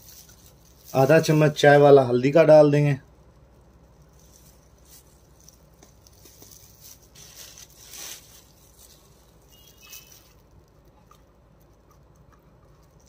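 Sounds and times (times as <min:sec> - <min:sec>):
soft rustles and light taps: 0:03.2 - 0:10.9.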